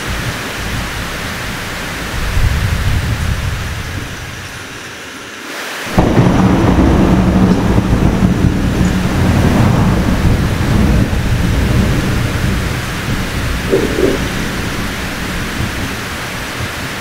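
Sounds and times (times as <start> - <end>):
heavy rain: 0.0 - 17.0
thunder crack and rumble: 5.9 - 17.0.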